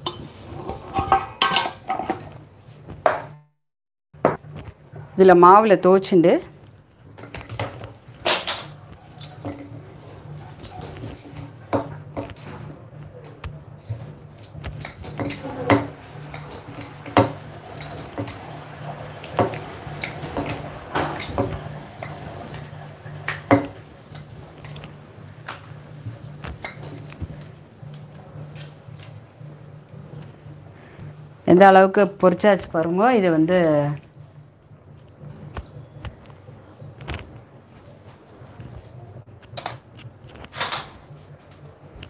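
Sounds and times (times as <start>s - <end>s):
steady low hum: 4.2s - 42.0s.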